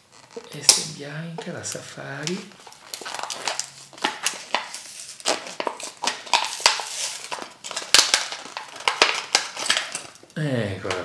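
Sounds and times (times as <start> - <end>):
plastic blister crackling: 0.0 - 11.0.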